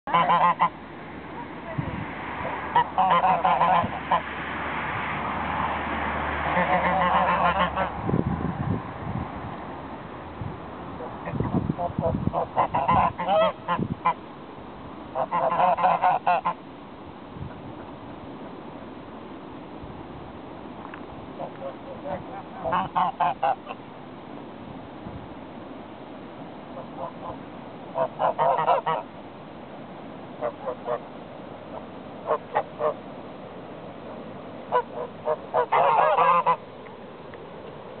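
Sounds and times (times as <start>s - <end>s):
geese honking: 0.1s - 0.7s, 2.4s - 4.3s, 6.4s - 8.0s, 11.0s - 14.2s, 15.1s - 16.6s, 21.4s - 23.8s, 26.8s - 29.1s, 30.4s - 31.1s, 31.7s - 33.0s, 34.7s - 36.6s.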